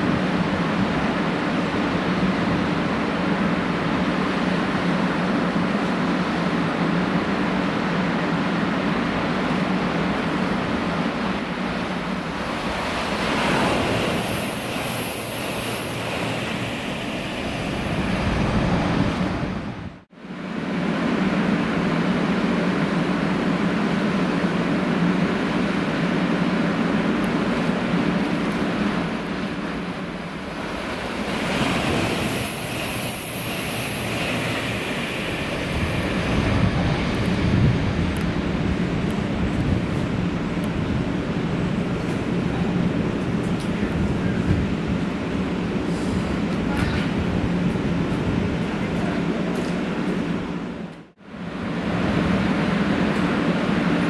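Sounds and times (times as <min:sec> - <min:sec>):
train rushing past: 0:00.0 - 0:54.0.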